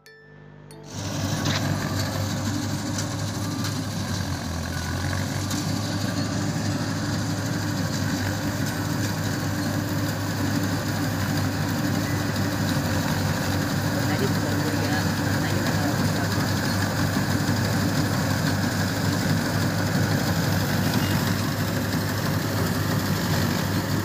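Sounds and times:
harvester diesel engine running: 0.7s - 24.0s.

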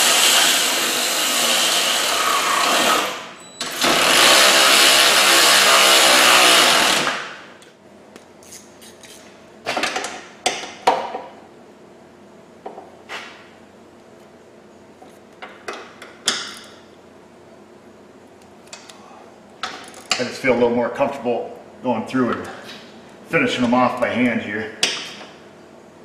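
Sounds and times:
power tool running: 0.0s - 7.5s.

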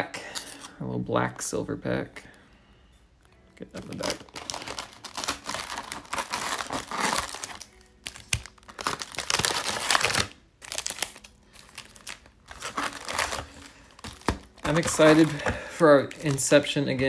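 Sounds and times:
quiet music: 0.0s - 17.0s
foil wrappers crinkling: 3.7s - 17.0s.

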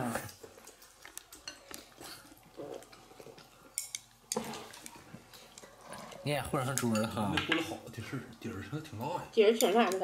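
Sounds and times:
chopsticks clinking on porcelain bowls: 0.7s - 7.9s.

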